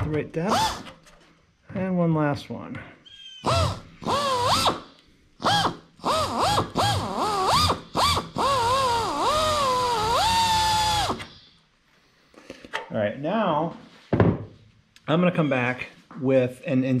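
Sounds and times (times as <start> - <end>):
pneumatic air drill whining: 0.5 - 1.0, 3.4 - 11.6.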